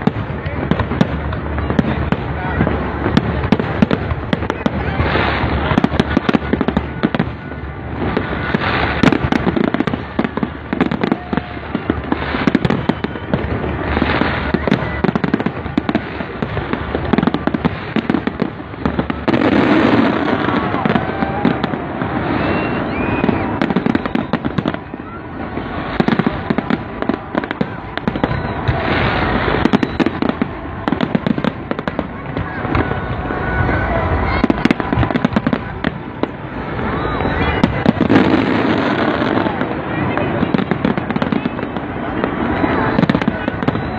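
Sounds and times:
crowd voices: 0:00.0 - 0:43.9
fireworks bursting and crackling: 0:00.0 - 0:43.9.

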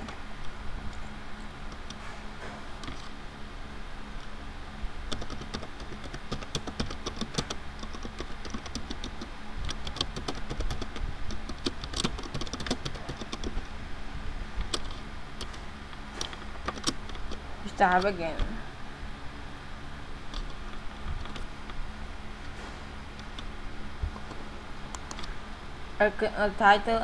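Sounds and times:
steady low hum: 0:00.0 - 0:27.0
keyboard key clicks: 0:05.1 - 0:13.6.

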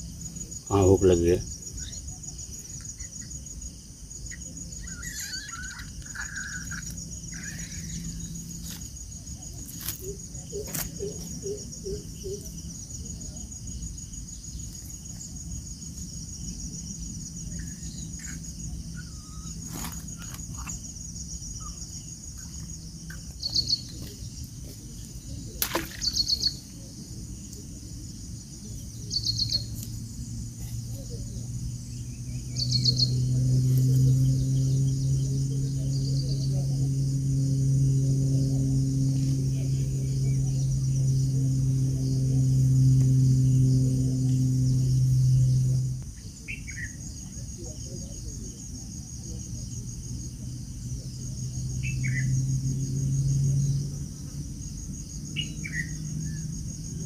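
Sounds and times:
birds chirping: 0:00.0 - 0:15.2, 0:16.4 - 0:26.9, 0:28.8 - 0:47.2, 0:51.1 - 0:54.0, 0:54.7 - 0:56.6
insects trilling: 0:00.0 - 0:57.0
loud chirping bursts: 0:04.3 - 0:08.7.

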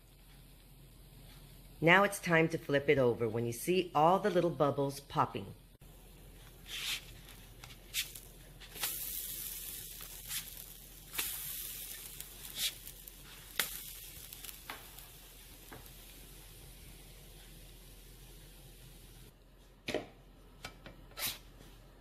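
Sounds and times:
pancakes sizzling in a skillet: 0:06.3 - 0:19.3.

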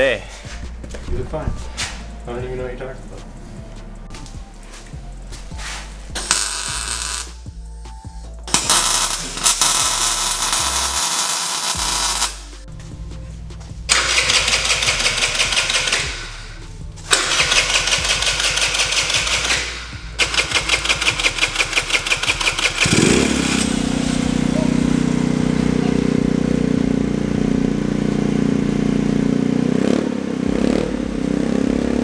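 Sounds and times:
background music with bass: 0:00.0 - 0:32.0
crackling welding arc: 0:06.2 - 0:07.4, 0:08.5 - 0:12.5
scooter engine idling: 0:11.8 - 0:32.0.

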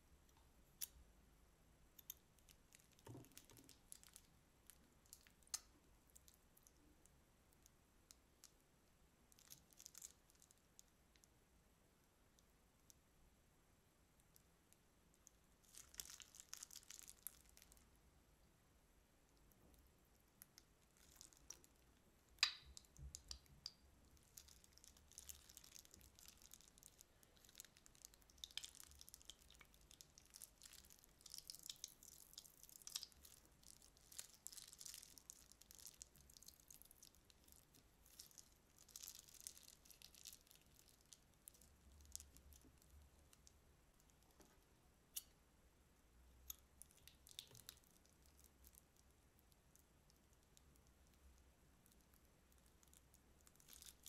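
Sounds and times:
sticky slime crackles: 0:09.3 - 0:10.9, 0:15.6 - 0:17.8, 0:19.7 - 0:44.4, 0:46.5 - 0:54.0.

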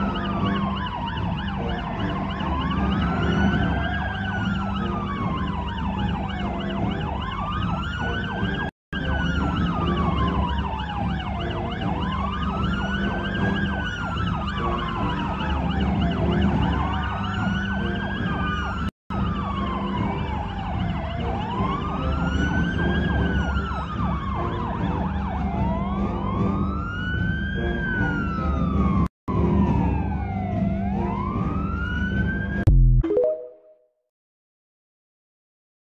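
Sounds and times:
police siren wailing: 0:00.0 - 0:32.7.

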